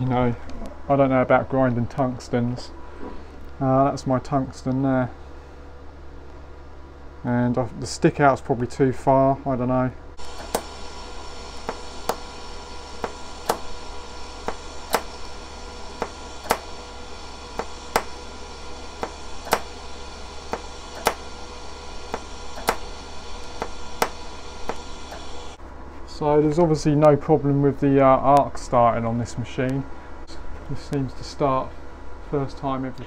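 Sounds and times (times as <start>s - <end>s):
welding arc hissing: 10.2s - 25.6s.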